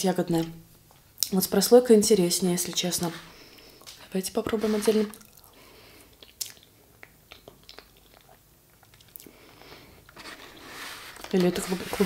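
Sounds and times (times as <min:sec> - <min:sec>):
soft wet chewing: 0:05.1 - 0:09.8.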